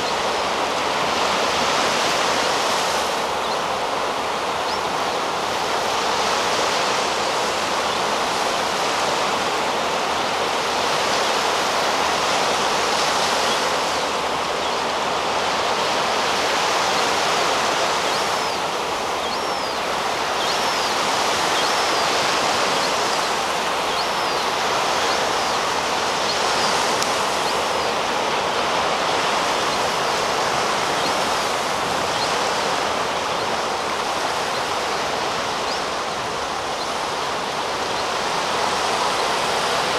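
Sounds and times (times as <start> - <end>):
sea surf breaking on beach: 0.0 - 39.9
young gull begging calls: 15.8 - 39.4.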